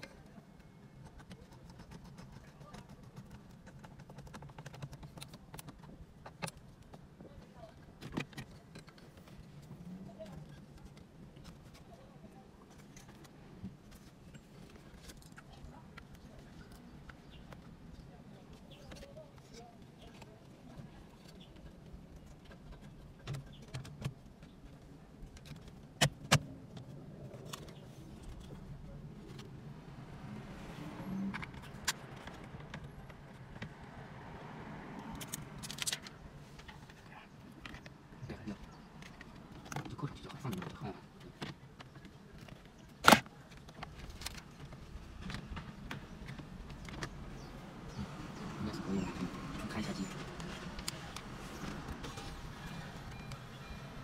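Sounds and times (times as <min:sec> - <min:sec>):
plastic clicks and rattles: 0:01.0 - 0:07.0, 0:35.0 - 0:37.0.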